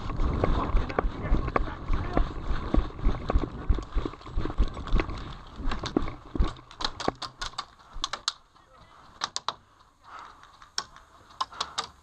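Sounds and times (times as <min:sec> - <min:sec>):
airsoft gunfire clicks and pops: 0:05.7 - 0:08.4.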